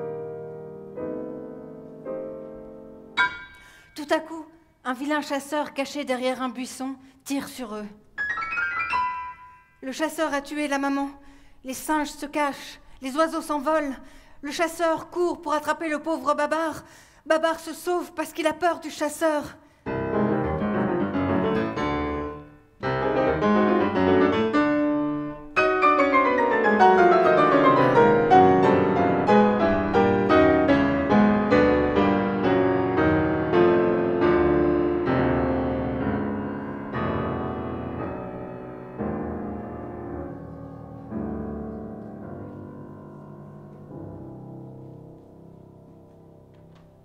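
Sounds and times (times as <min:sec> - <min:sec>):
grand piano playing: 0:00.0 - 0:04.3, 0:08.2 - 0:10.3, 0:19.9 - 0:47.0.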